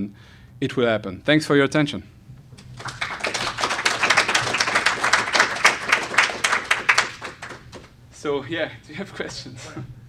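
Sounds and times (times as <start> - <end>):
audience applauding: 2.6 - 8.0.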